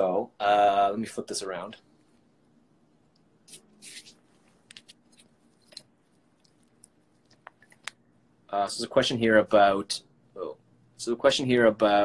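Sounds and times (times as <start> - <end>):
small clicks and taps: 4.6 - 8.0.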